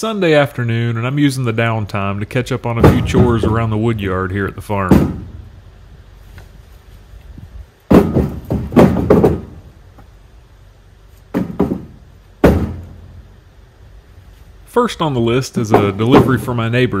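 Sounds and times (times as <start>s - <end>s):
sharp knocks and thuds: 2.8s - 3.8s, 4.8s - 5.5s, 7.9s - 10.1s, 11.3s - 13.1s, 15.7s - 16.5s.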